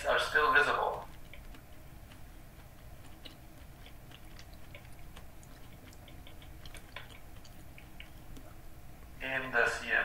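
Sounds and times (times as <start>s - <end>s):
wet chewing: 0.0s - 9.2s
mouth clicks: 0.6s - 8.6s.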